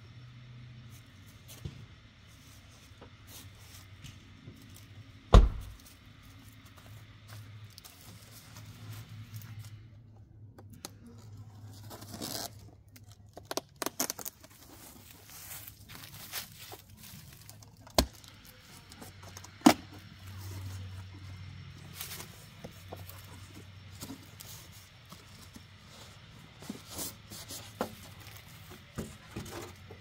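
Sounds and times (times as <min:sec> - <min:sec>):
heavy thump: 0:05.3 - 0:05.8
packing tape tearing: 0:10.7 - 0:18.6
cardboard scraping: 0:21.8 - 0:30.0.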